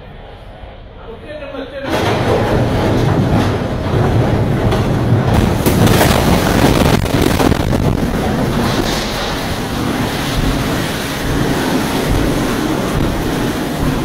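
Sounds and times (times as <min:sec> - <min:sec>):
heavy low rumble: 0:02.0 - 0:14.0
wind buffeting microphone: 0:03.2 - 0:14.0.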